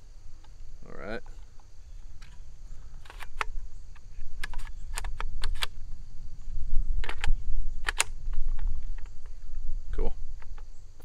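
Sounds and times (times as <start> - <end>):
rifle clicks and rattles: 1.4 - 5.8, 7.0 - 9.4.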